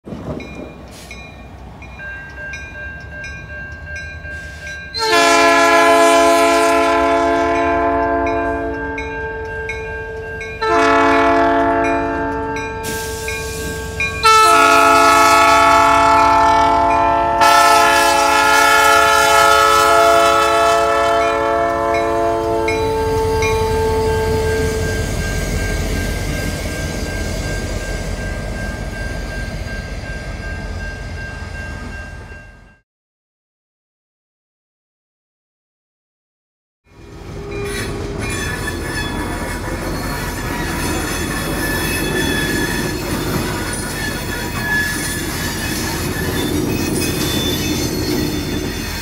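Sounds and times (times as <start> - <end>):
crossing bell ticking: 0.3 - 5.6, 7.5 - 15.7, 21.2 - 32.8, 37.0 - 49.0
locomotive air horn blasts: 5.0 - 9.0, 10.6 - 25.0.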